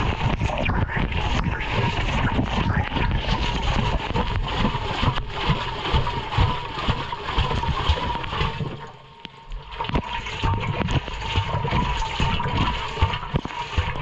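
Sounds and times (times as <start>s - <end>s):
water and laundry sloshing in drum: 0.0s - 14.0s.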